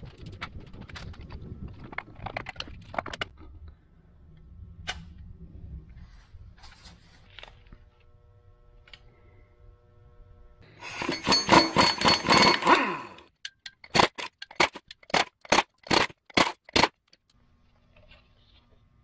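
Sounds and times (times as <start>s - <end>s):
impact wrench hammering: 10.8s - 17.0s.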